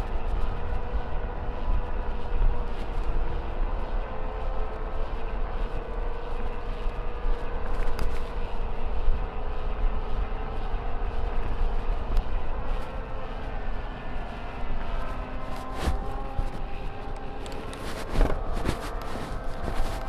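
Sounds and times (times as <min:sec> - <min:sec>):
steady whine: 0:00.0 - 0:20.0
wind rumbling on microphone: 0:00.0 - 0:20.0.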